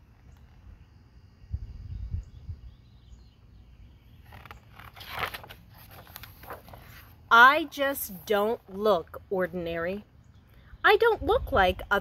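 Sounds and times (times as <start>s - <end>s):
paper page turning: 4.2s - 7.2s.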